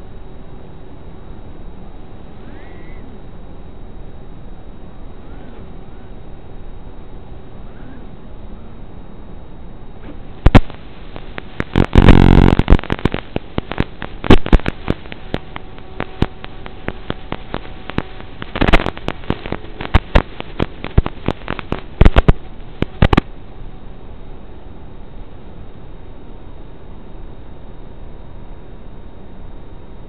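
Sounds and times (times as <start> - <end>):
steady hiss: 0.0 - 25.7
crackling pops and clicks: 10.0 - 23.4
loud buzz: 10.1 - 23.8.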